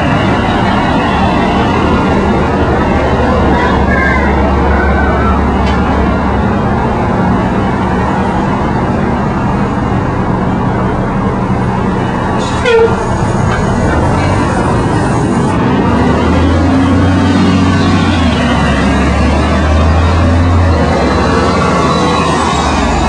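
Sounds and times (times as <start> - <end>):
rumble of vehicle engines: 0.0 - 23.0
car horn toot: 12.6 - 13.1.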